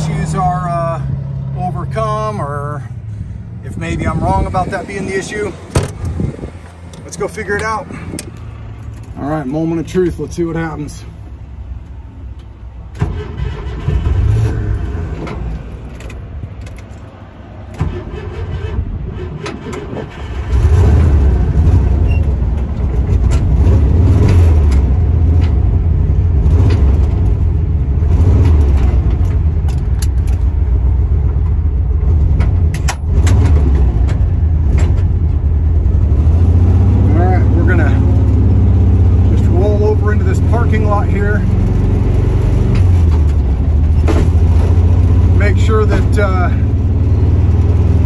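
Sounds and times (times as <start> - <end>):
engine clicks and knocks: 12.3 - 36.1.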